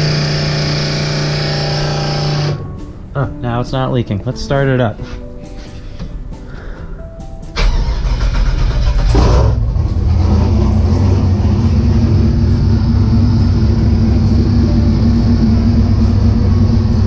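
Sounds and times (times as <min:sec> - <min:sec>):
car engine idling: 0:00.0 - 0:03.0, 0:07.6 - 0:17.0.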